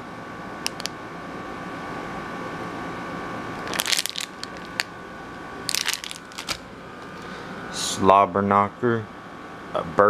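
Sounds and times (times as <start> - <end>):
steady hum: 0.0 - 10.0
sharp click: 0.7 - 1.0
plastic bag crinkling: 3.6 - 4.9, 5.7 - 6.6.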